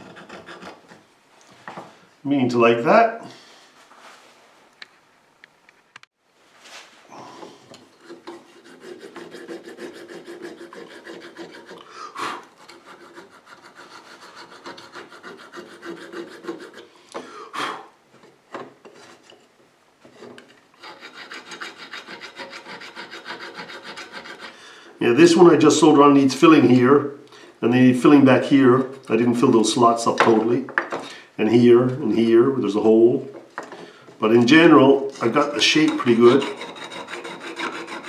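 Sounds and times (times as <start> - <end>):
file scraping on metal: 0.0 - 1.1, 7.9 - 11.9, 12.5 - 16.9, 20.1 - 24.6, 35.2 - 38.0.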